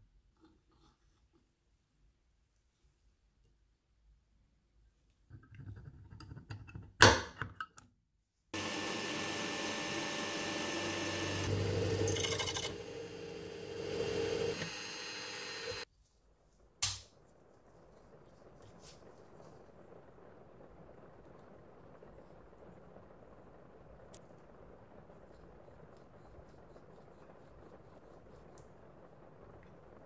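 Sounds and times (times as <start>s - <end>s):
drill press drilling metal: 8.6s - 15.8s.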